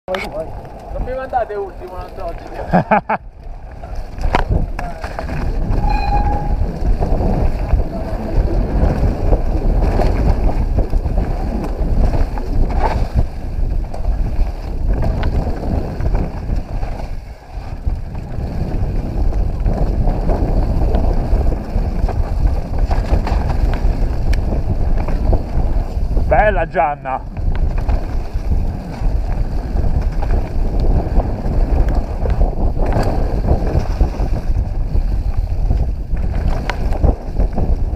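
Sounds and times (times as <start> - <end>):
bike knocking and rattling: 0.1 - 26.4, 27.2 - 37.9
wind and tyres rumbling: 0.1 - 37.9
short high tone: 5.8 - 6.7.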